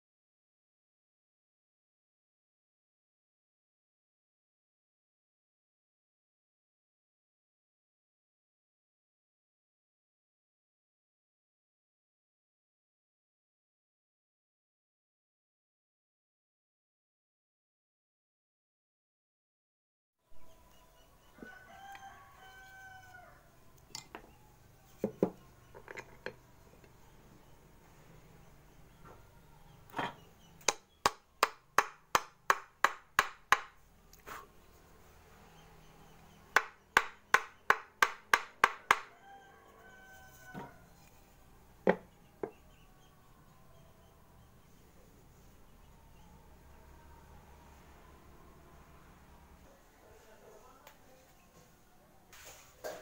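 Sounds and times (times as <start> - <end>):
rooster crowing: 20.4 - 24.8, 38.8 - 41.1
knocks of wood and tools: 25.0 - 26.9, 29.9 - 33.7, 36.6 - 39.1, 40.4 - 40.9, 41.8 - 42.6
hand tool tapping on wood: 36.6 - 39.1.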